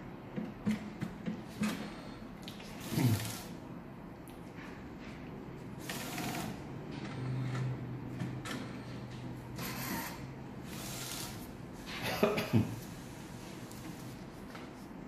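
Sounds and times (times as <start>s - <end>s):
printer carriage whirring: 0.0s - 12.1s
steady motor hum: 1.2s - 4.6s, 5.6s - 12.0s.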